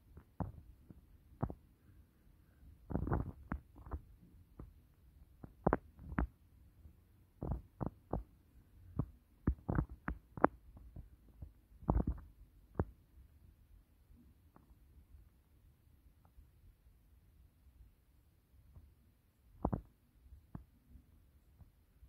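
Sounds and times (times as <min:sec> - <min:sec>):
soft knocks and bumps: 0:09.0 - 0:12.9.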